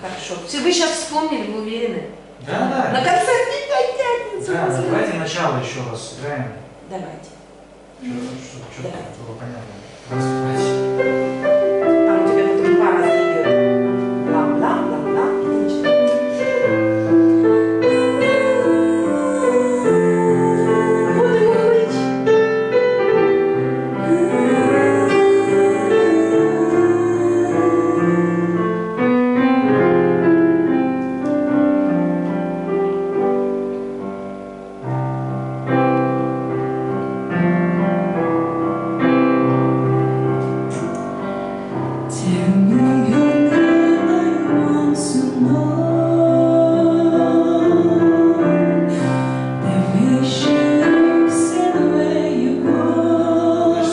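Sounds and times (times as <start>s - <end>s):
piano playing chords and melody: 10.0s - 53.9s
woman singing: 14.3s - 22.3s, 24.0s - 28.6s, 42.1s - 53.9s.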